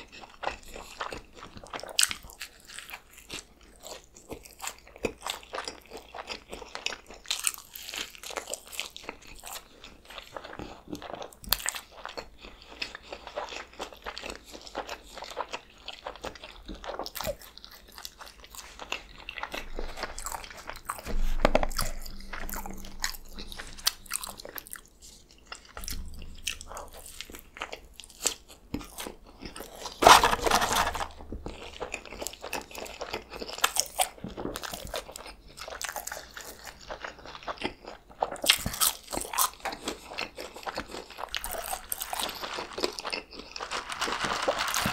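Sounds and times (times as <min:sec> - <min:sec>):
wet chewing mouth sounds: 0:00.0 - 0:30.2, 0:31.2 - 0:43.7
food handling noises: 0:18.4 - 0:35.0, 0:40.7 - 0:44.9.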